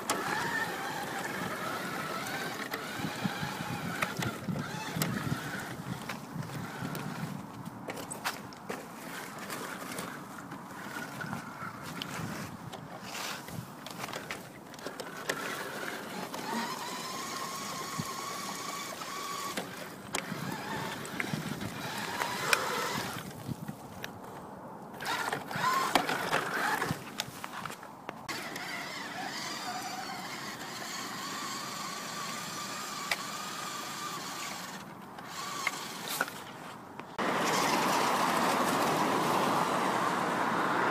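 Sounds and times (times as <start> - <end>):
toy car motor whining: 0.0 - 7.3, 13.9 - 23.4, 25.0 - 36.4.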